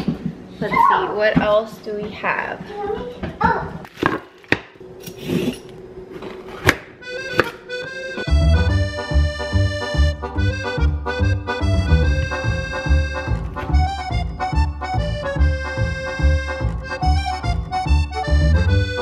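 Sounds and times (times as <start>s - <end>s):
background music with steady beat: 7.0s - 19.0s.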